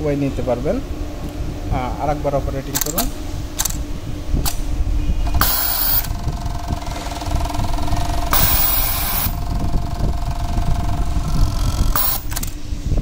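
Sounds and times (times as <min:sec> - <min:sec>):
sewing machine stitching: 0:05.3 - 0:12.5.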